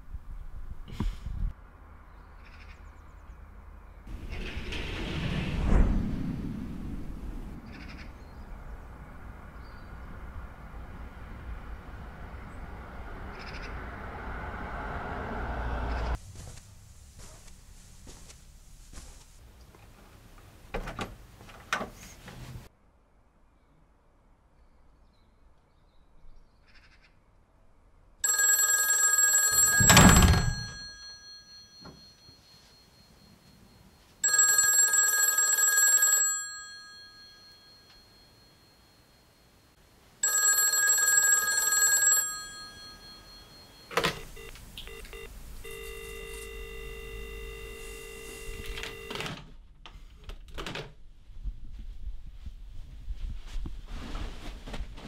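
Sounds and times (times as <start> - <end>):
desk telephone ringing: 28.2 - 39.1, 40.2 - 49.4.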